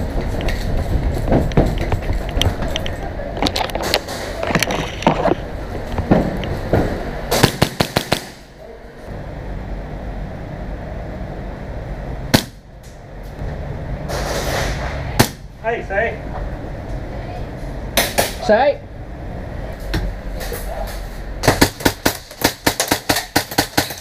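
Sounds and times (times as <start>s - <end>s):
airsoft guns firing: 7.3s - 8.5s.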